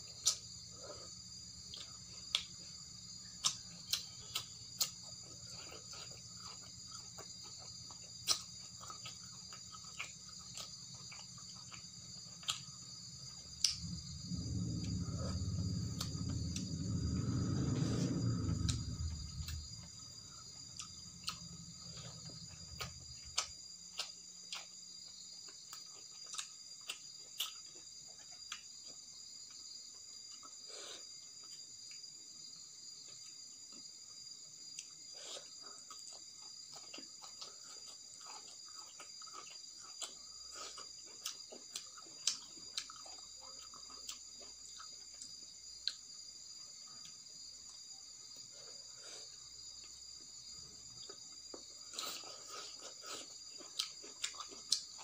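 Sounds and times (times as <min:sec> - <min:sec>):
crickets chirring: 0:00.0 - 0:55.0
chewing clicks: 0:34.8 - 0:46.0, 0:51.0 - 0:55.0.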